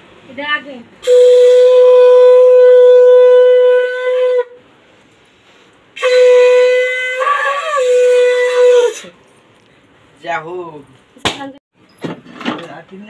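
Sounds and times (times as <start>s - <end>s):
conch shell blasts: 1.0s - 4.6s, 6.0s - 9.2s.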